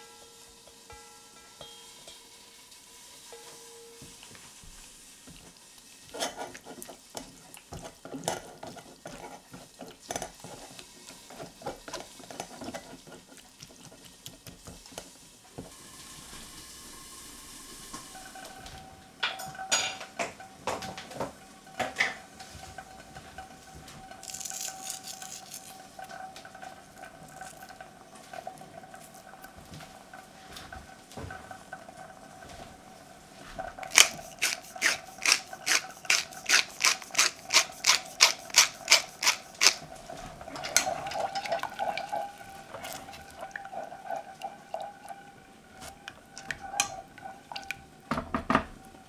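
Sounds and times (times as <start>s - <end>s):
faint steady tone: 0.0s - 4.3s
spoon scraping metal sieve: 6.2s - 7.0s, 24.2s - 26.0s, 33.8s - 43.4s.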